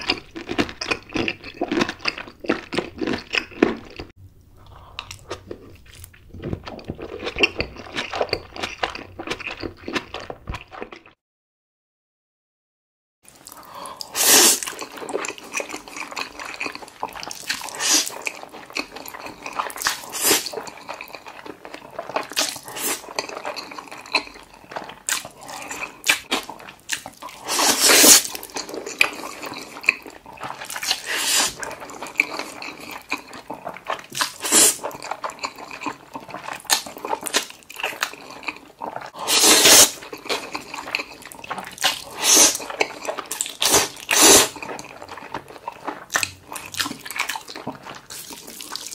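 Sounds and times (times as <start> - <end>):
smacking squelching chewing: 13.4 - 48.9
wet noodle slurping: 14.0 - 14.9, 15.5 - 21.1, 22.0 - 48.9.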